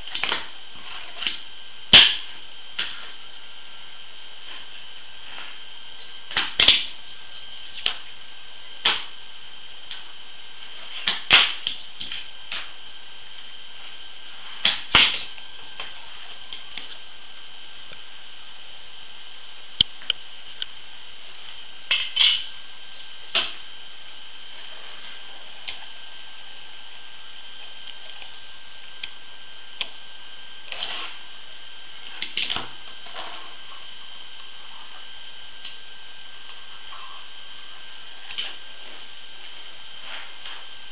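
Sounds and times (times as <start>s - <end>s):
faint high whine: 0.0s - 40.9s
fingerboard rolling scrape: 30.7s - 31.2s.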